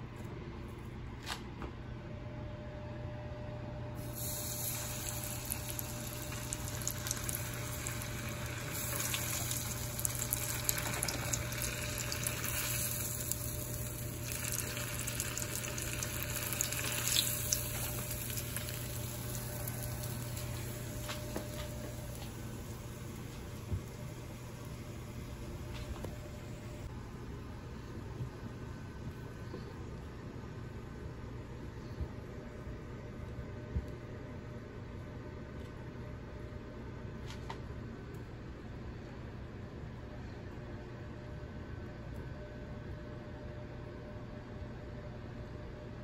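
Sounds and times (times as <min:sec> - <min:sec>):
hot oil sizzling: 0:04.0 - 0:25.4
oil pops and crackles: 0:04.8 - 0:22.3.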